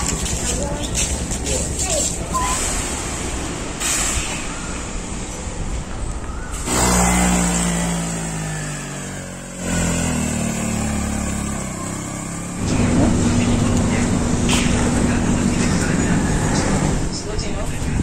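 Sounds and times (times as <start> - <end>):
motorbike engine climbing: 5.6 - 17.0.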